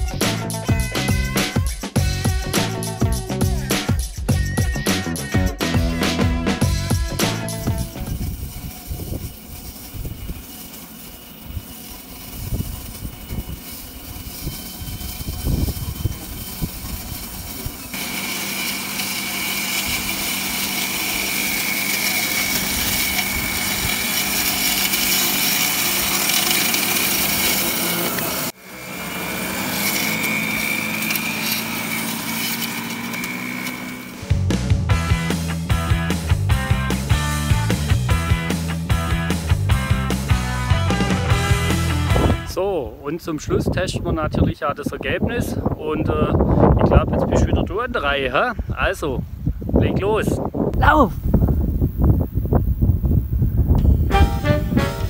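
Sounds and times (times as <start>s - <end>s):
toy tractor motor whining: 4.4s - 34.3s
wind rumbling on microphone: 7.6s - 10.5s, 11.4s - 17.8s, 42.1s - 42.6s, 43.3s - 55.0s.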